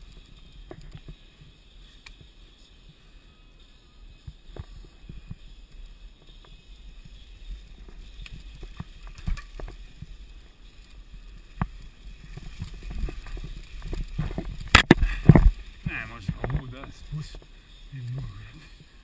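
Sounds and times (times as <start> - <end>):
bike rattling over bumps: 4.4 - 17.6
bike tyres rumbling on dirt: 4.7 - 19.0.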